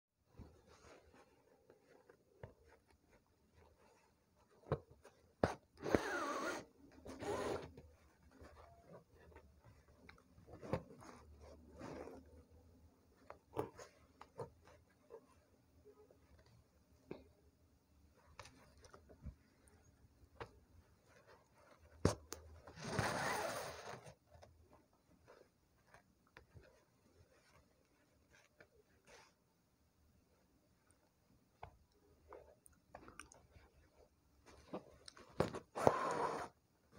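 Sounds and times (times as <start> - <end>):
ribbon scraping through fabric: 0.6 - 12.5, 21.0 - 24.2, 34.5 - 36.6.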